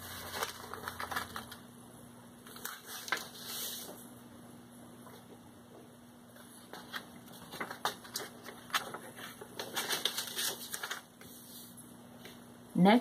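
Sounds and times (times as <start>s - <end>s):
paper rustling and crackling: 0.0s - 1.6s, 2.4s - 4.0s, 6.4s - 11.8s.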